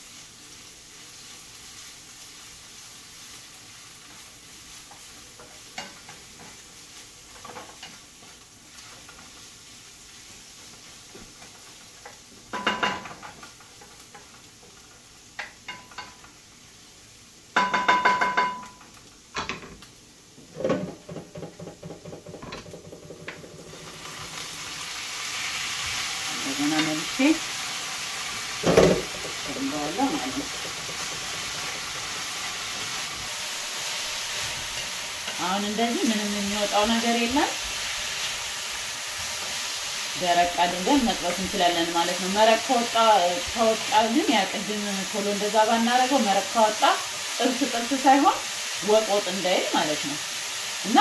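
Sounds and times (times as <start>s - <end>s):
garlic sizzling in oil: 0.0s - 51.0s
meat frying loudly: 0.0s - 51.0s
kitchenware clattering: 12.5s - 13.4s, 17.6s - 18.8s, 20.5s - 23.7s, 28.6s - 31.9s.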